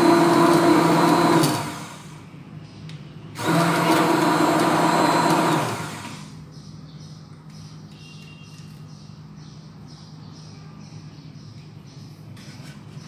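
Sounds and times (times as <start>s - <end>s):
hand blender motor whine: 0.0s - 2.1s, 3.4s - 6.3s.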